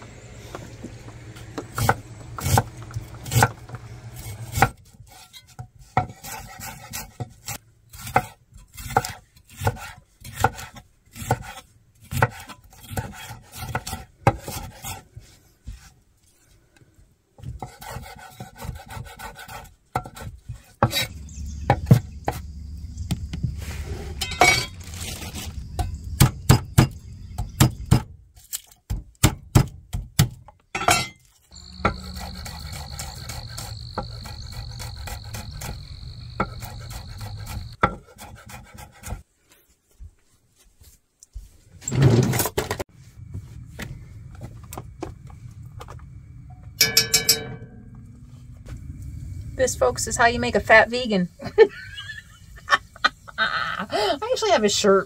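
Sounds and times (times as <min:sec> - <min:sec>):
knife chopping on wooden board: 0:08.0 - 0:14.8.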